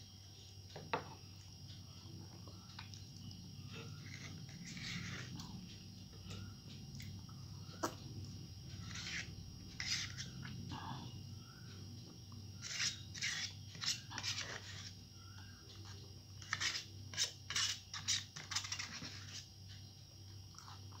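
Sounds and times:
steady low hum: 0.0 - 21.0
eating sounds: 2.2 - 8.4
spoon scraping plastic cup: 3.9 - 5.4, 8.8 - 10.3, 12.6 - 14.9, 16.4 - 19.5.

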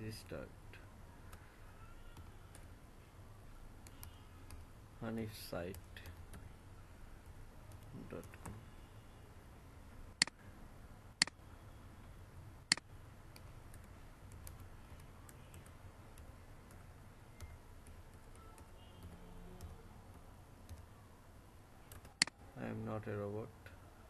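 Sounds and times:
computer keyboard typing: 2.1 - 2.7, 12.7 - 20.9, 21.8 - 22.4
sharp clicks: 12.7 - 14.6.

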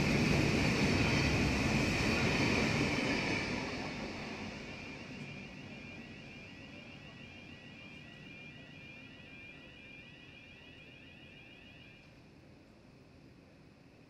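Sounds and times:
diesel train rumble: 0.0 - 10.7
electronic warning bell ringing: 4.6 - 12.1.

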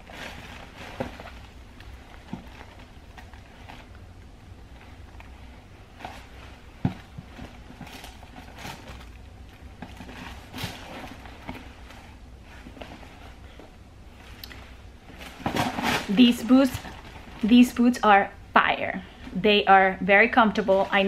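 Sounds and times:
short rustles: 0.0 - 17.9
low steady hum: 0.0 - 21.0.

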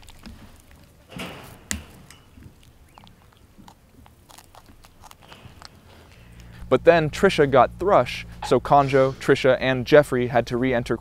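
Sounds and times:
monkey chewing grass: 0.0 - 8.6.

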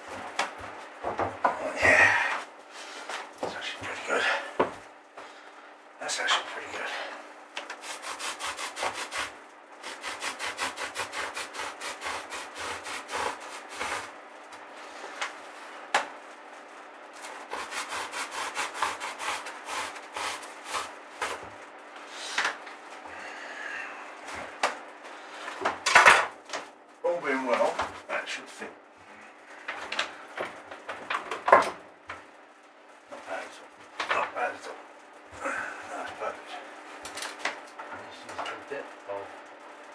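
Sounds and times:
blade sawing through foam: 7.8 - 14.1, 17.2 - 21.4.

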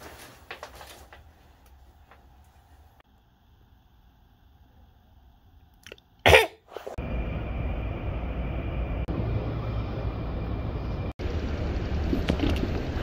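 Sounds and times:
cough-like vocal burst: 6.2 - 6.9
faint high whine: 7.0 - 11.8
low outdoor rumble: 7.0 - 13.0.

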